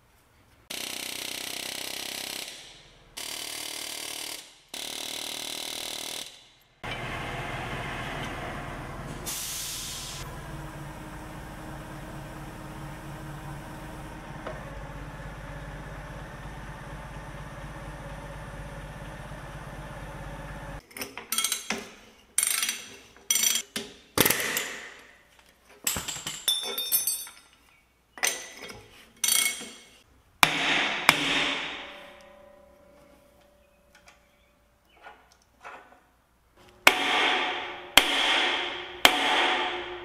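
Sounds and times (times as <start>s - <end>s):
low mechanical hum: 6.8s - 20.8s
metal tools clanking: 25.7s - 30.0s.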